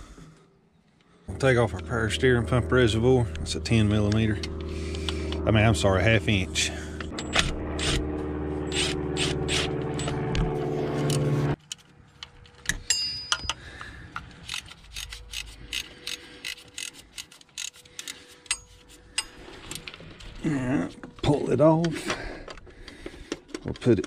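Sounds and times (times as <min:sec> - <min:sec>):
cordless electric ratchet running: 0:08.7 - 0:10.2, 0:14.4 - 0:18.3
hand ratchet clicking: 0:14.2 - 0:19.4.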